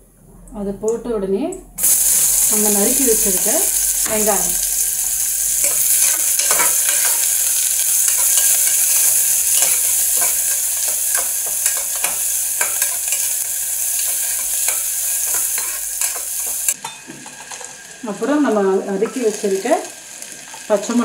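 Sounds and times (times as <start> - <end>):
onions sizzling in hot oil: 1.8 - 21.0
steel ladle scraping a pot: 5.5 - 16.8.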